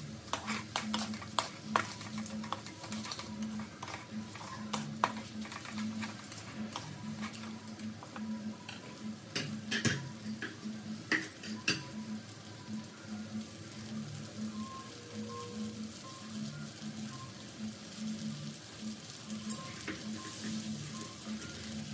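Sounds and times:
wooden spatula scraping wok: 0.0s - 8.8s
light sizzle: 0.0s - 21.9s.

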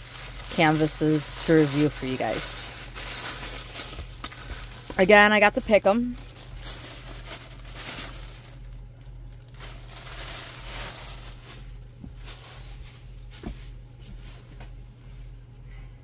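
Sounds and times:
steady low hum: 0.0s - 16.0s
faint rustling: 9.4s - 15.3s.

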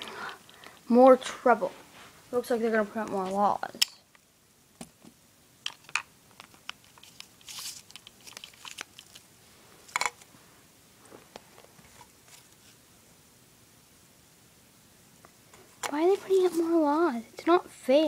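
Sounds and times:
paper slips crinkling: 6.8s - 9.3s.

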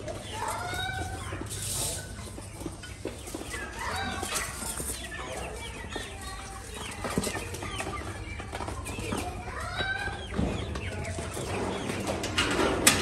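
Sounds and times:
young chickens clucking and cheeping: 0.0s - 13.0s.

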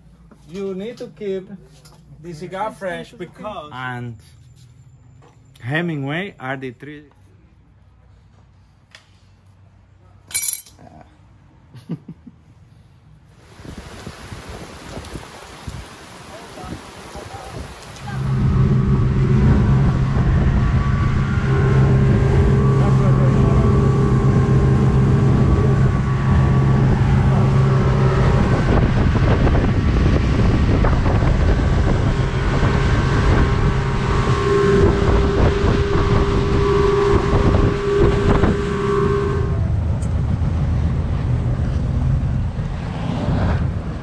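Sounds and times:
water noise: 13.3s - 44.0s
wind buffeting microphone: 13.4s - 44.0s
motorboat engine running: 17.3s - 42.5s.

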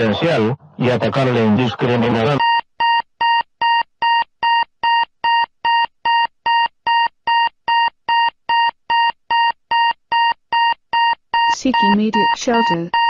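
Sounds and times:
electronic alert beeps: 10.6s - 13.0s.

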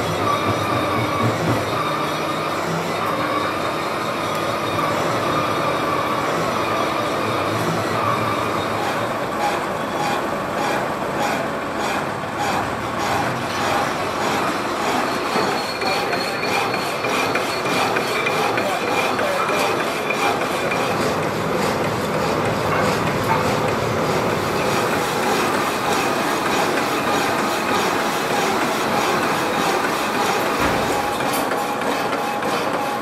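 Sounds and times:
power hacksaw rasping on metal: 7.6s - 33.0s
thin high squeal: 14.8s - 20.1s.

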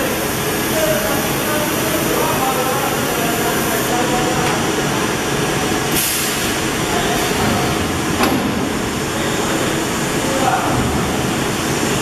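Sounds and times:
burst of hissing: 6.0s - 6.6s.

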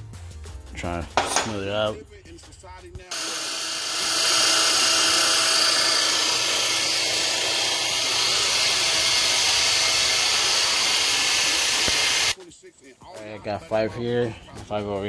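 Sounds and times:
pneumatic die grinder hissing: 3.1s - 12.4s.

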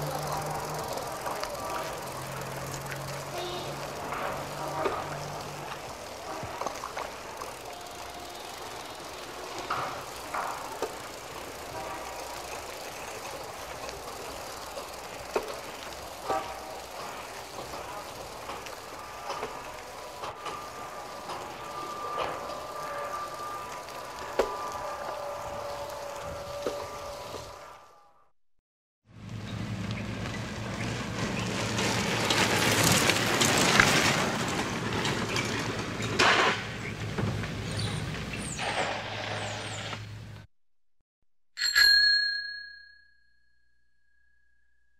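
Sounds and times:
bicycle clicks and rattles: 0.0s - 27.6s, 29.5s - 37.9s
high squeaks: 3.4s - 27.7s.

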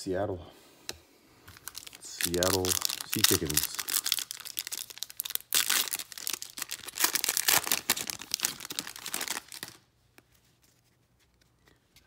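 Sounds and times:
foil wrapper tearing and crinkling: 1.5s - 9.8s.

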